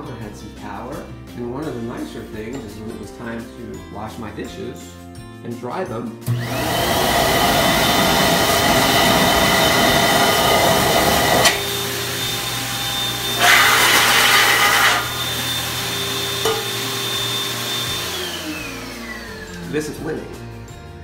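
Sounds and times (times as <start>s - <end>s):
electric hand dryer blowing: 6.3s - 20.0s
hand dryer click: 8.1s - 11.8s.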